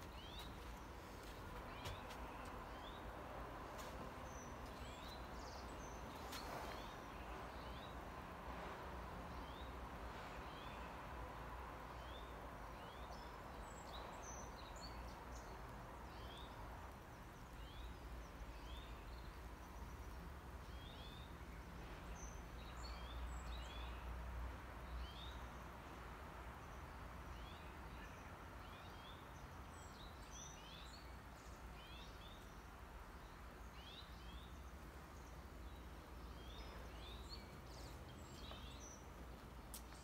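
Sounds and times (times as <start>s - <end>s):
small birds chirping: 0.0s - 8.0s, 26.6s - 40.0s.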